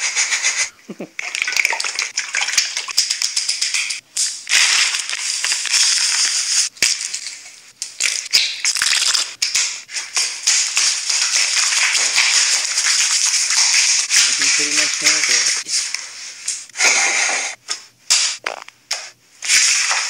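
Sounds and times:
potatoes deep-frying in oil: 0:02.0 - 0:15.8.

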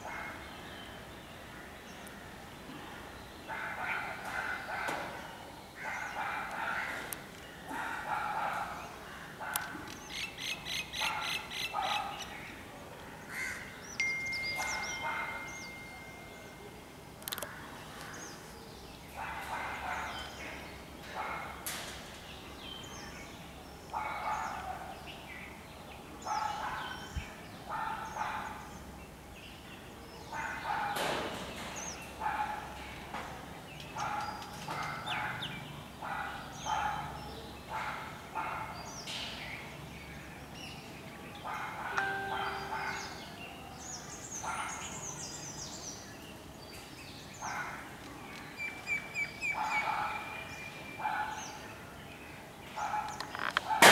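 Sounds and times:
rapid bird trill: 0:14.0 - 0:16.7.

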